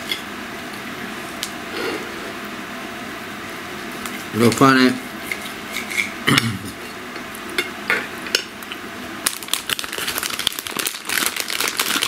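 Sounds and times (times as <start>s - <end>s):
plastic package crinkling: 9.2s - 12.0s.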